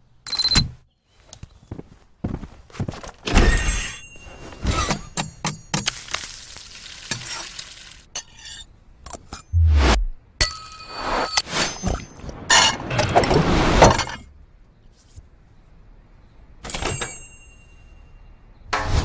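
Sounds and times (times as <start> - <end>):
short low buzz: 9.5 - 10.2.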